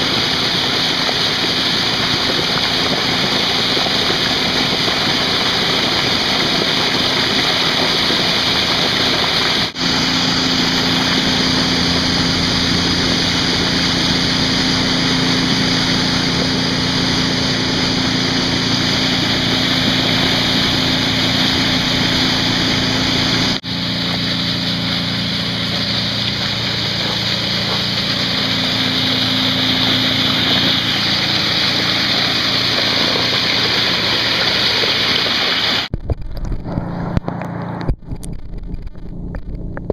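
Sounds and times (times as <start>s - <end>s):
water gushing into a pond: 0.0s - 39.9s.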